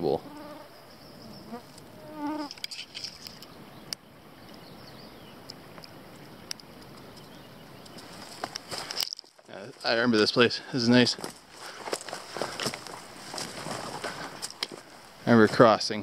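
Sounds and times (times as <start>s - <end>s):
mosquitoes buzzing: 0.1s - 2.6s.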